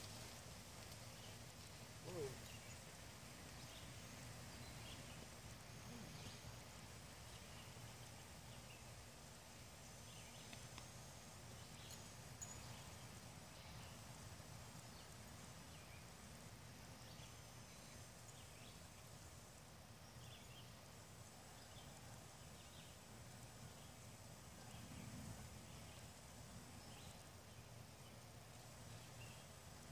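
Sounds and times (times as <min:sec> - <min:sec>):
faint outdoor hum: 0:00.0 - 0:29.9
faint chirps: 0:02.0 - 0:02.9, 0:03.6 - 0:09.1.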